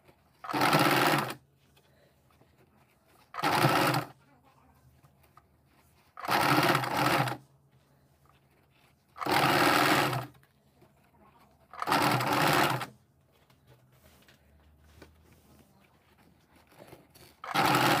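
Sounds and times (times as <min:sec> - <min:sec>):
sewing machine stitching: 0:00.0 - 0:01.4, 0:03.1 - 0:04.2, 0:06.0 - 0:07.4, 0:09.1 - 0:10.4, 0:11.6 - 0:13.0, 0:16.1 - 0:18.0.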